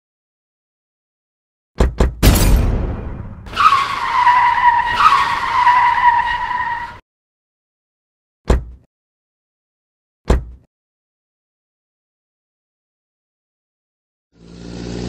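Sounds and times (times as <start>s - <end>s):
tyre screech: 3.5s - 7.0s
dull thud: 8.5s - 8.8s, 10.3s - 10.6s.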